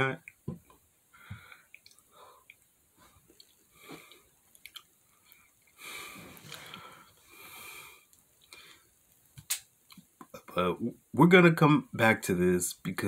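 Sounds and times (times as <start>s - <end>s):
man breathing: 1.1s - 4.3s, 5.4s - 9.0s
mouth clicks and lip smacks: 1.5s - 2.7s, 3.3s - 5.8s, 8.1s - 10.4s.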